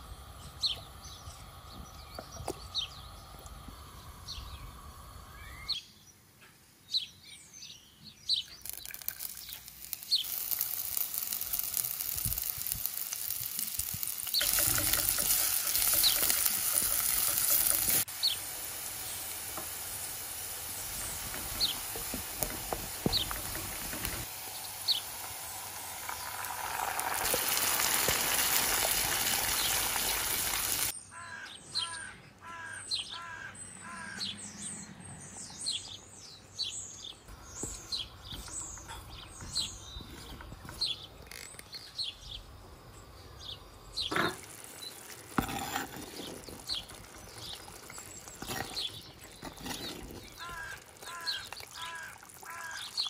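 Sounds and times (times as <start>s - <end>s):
birds chirping: 0.0s - 25.4s, 26.0s - 53.0s
paste sizzling in hot oil: 8.6s - 30.9s, 43.7s - 53.0s.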